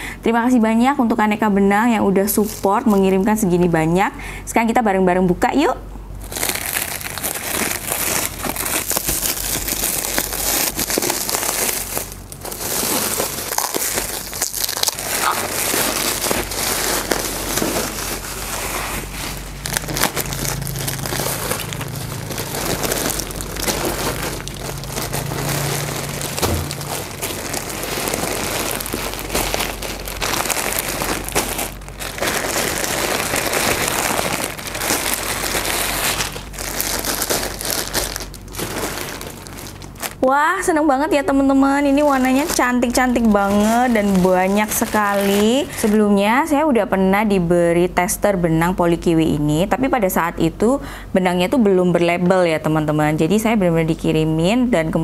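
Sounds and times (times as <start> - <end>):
plastic crinkling and rustling: 2.2 - 3.4, 6.2 - 46.5.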